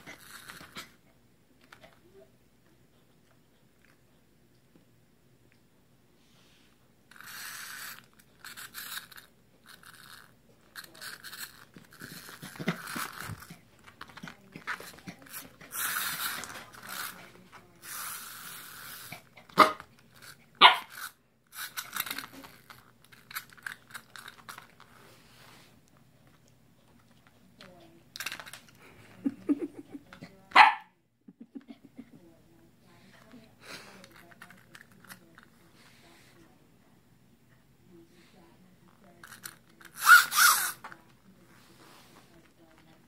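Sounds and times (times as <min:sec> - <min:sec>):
puppy barking: 0:19.6 - 0:19.8, 0:20.6 - 0:20.9, 0:30.5 - 0:30.9.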